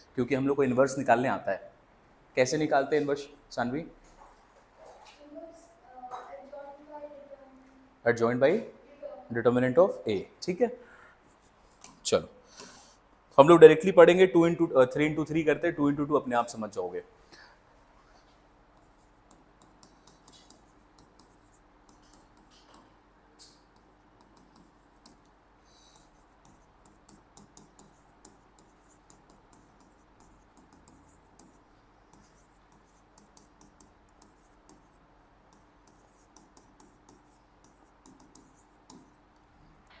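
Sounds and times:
writing on a board: 18.2 - 39.3.

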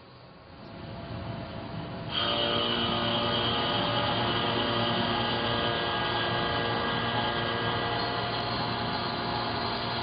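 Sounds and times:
high ringing tone: 2.1 - 10.0
milling cutter cutting steel: 2.1 - 10.0.

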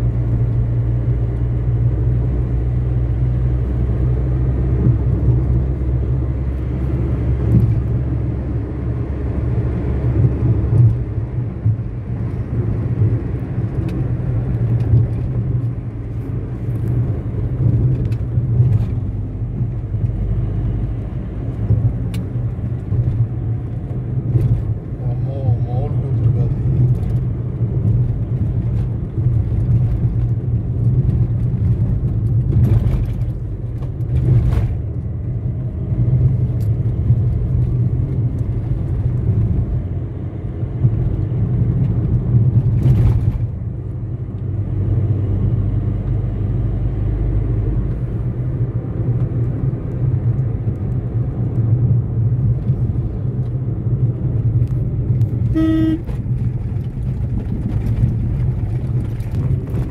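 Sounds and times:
car driving on highway: 0.0 - 59.9
car horn toot: 55.4 - 56.2.

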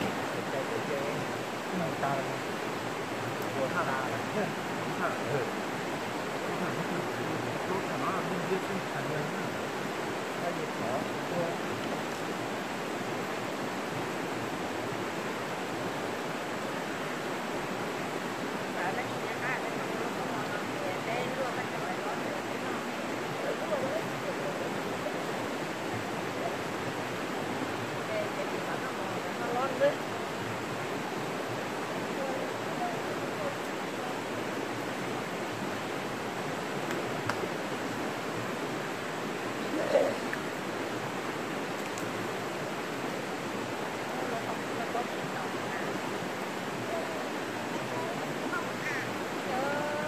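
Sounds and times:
water rushing over rocks: 0.0 - 50.0
faint voices: 18.7 - 30.6, 31.7 - 41.2, 42.4 - 50.0.

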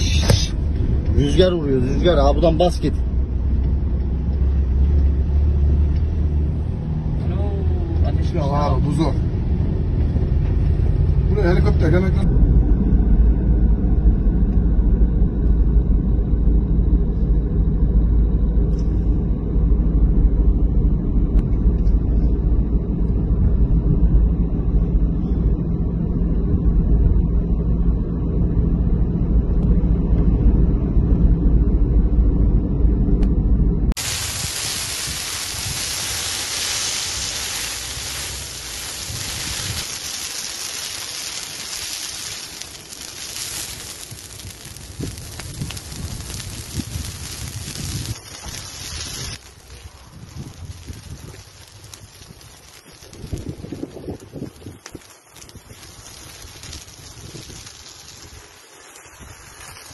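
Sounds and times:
burning brush crackling: 0.0 - 12.3, 33.9 - 59.9
wind buffeting microphone: 12.2 - 59.9.

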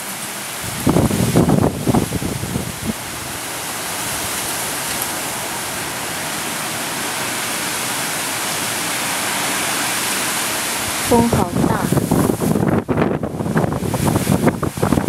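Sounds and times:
rain shower hissing: 0.0 - 15.0
low thunder rumble: 0.6 - 3.4, 10.9 - 15.0.

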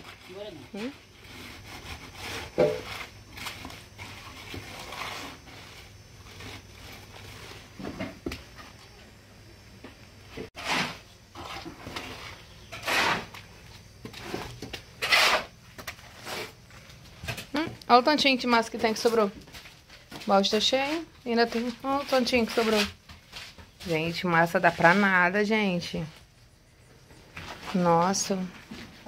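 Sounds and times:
tool scraping mortar in bucket: 0.0 - 8.8, 10.5 - 26.2
trowel scraping and patting cement: 0.0 - 8.8, 10.5 - 17.5, 18.1 - 25.4.

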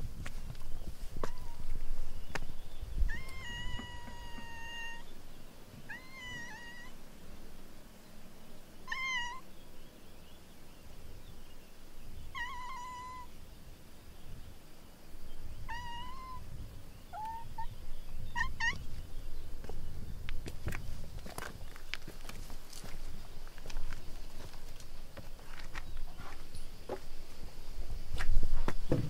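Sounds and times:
animal high-pitched calls: 3.1 - 5.1, 5.9 - 7.0, 8.9 - 9.5, 12.3 - 13.3, 15.7 - 16.5, 17.1 - 18.8.

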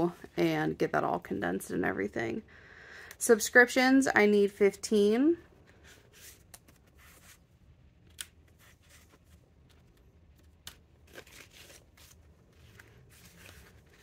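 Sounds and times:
banknotes rustling: 5.6 - 14.0.

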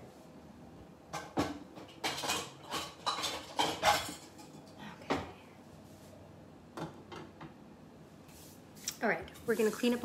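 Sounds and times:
pot lids and pans clattering: 1.1 - 4.7.

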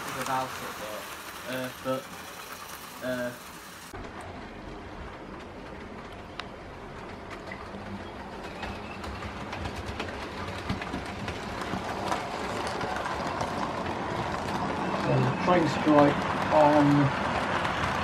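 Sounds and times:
model train rumbling: 0.0 - 18.0
wheels clicking over rail joints: 0.0 - 18.0.

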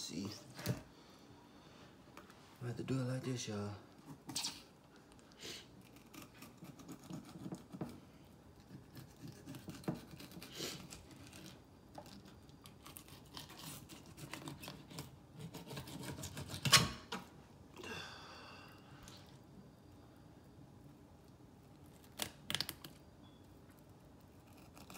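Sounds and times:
knife scraping fish: 8.7 - 11.6, 12.7 - 16.9.

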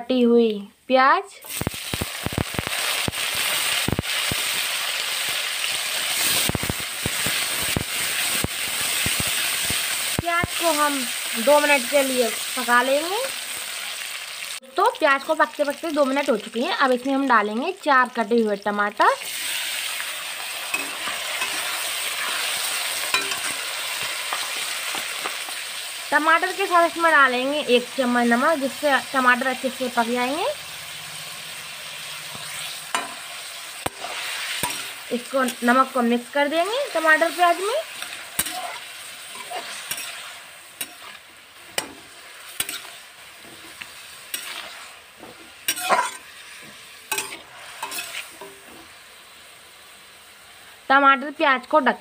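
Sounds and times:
onions sizzling in hot oil: 1.2 - 52.0
metal spatula scraping a pan: 20.6 - 25.5, 32.0 - 35.9, 36.9 - 48.9.

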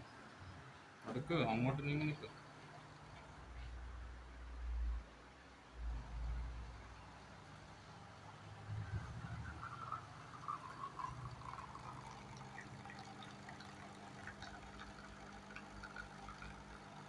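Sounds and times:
espresso machine humming: 9.0 - 17.0
espresso trickling into cup: 9.0 - 17.0.

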